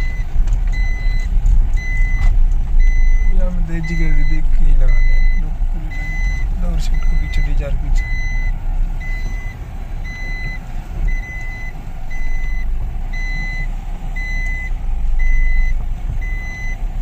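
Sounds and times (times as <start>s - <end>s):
car engine low rumble: 0.0s - 17.0s
parking sensor beeps: 0.0s - 17.0s.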